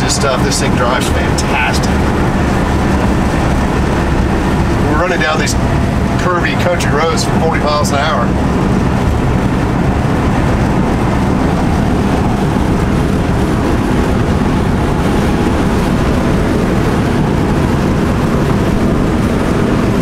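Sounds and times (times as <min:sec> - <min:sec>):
van engine and road drone: 0:00.0 - 0:20.0.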